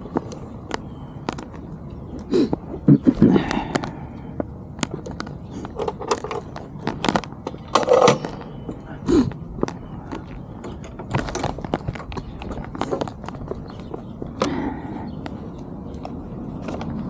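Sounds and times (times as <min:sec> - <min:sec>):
handling clicks and knocks: 0:04.7 - 0:08.8, 0:09.6 - 0:17.0.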